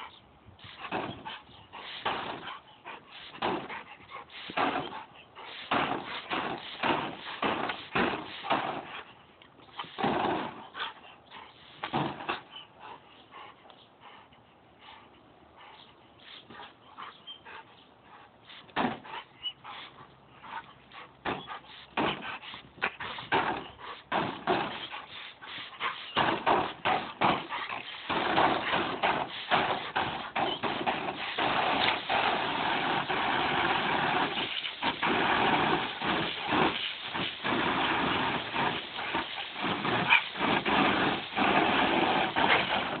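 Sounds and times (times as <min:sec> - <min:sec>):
garden hose spraying water: 0:00.6 - 0:12.3, 0:18.1 - 0:43.0.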